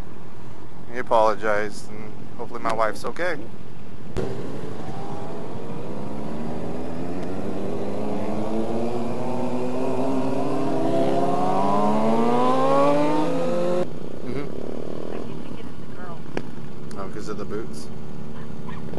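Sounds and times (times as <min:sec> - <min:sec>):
motorcycle engines accelerating: 0:04.2 - 0:16.0.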